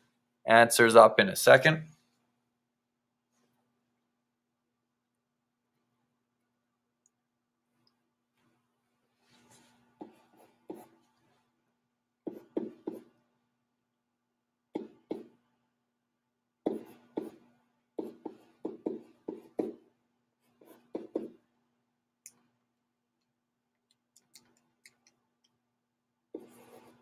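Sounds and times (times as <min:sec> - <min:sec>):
faint steady hum: 0:00.0 - 0:27.0
scrape: 0:09.2 - 0:11.5, 0:26.4 - 0:27.0
pen scratching on paper: 0:09.5 - 0:11.2, 0:12.2 - 0:13.1, 0:14.7 - 0:15.4, 0:16.6 - 0:21.4, 0:26.3 - 0:27.0.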